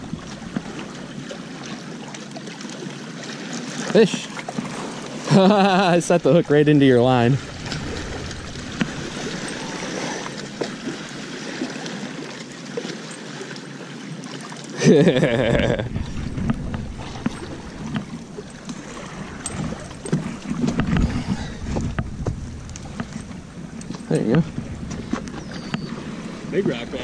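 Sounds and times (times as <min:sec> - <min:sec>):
small waves lapping on rocks: 0:00.0 - 0:27.0
low bumps: 0:04.5 - 0:11.4, 0:15.2 - 0:27.0
wind on microphone: 0:06.4 - 0:11.6, 0:15.2 - 0:27.0.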